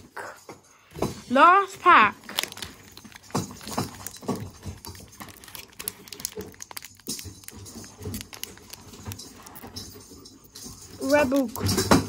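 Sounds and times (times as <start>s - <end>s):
foil wrapper crinkling and tearing: 1.8s - 9.8s.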